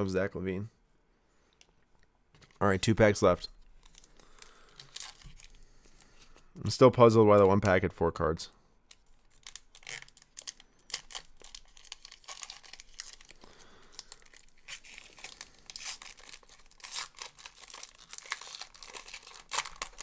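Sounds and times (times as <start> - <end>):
wrapper tearing and crinkling: 3.8 - 5.6, 8.9 - 20.0.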